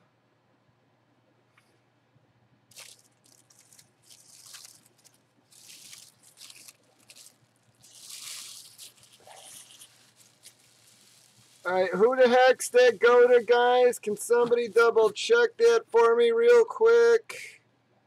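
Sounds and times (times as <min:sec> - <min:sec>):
packing paper rustling: 0:02.7 - 0:15.2.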